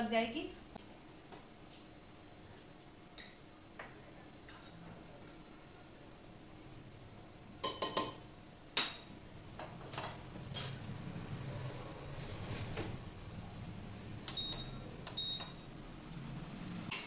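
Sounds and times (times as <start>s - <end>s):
metal kitchenware clinking: 9.9s - 11.0s.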